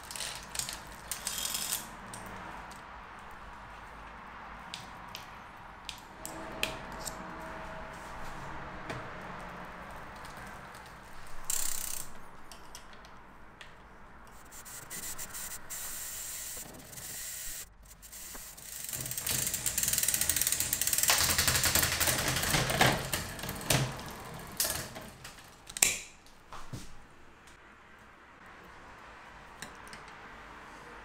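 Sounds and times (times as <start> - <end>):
bicycle chain running: 0.0 - 2.3, 9.7 - 12.2, 14.3 - 25.6
bicycle freehub ticking: 0.0 - 4.0, 11.4 - 12.8, 14.2 - 23.7
mechanical rattles: 16.4 - 25.7.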